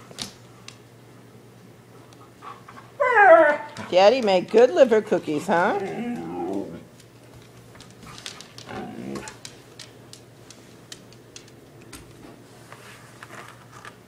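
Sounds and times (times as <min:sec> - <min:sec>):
dog whining: 0:03.0 - 0:03.9, 0:05.6 - 0:06.9.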